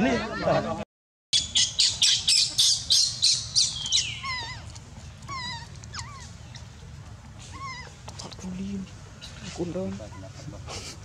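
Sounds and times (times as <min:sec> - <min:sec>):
baby monkey screaming: 0:01.4 - 0:06.4, 0:07.5 - 0:08.0
whimpering cries: 0:04.1 - 0:06.4, 0:07.4 - 0:08.0.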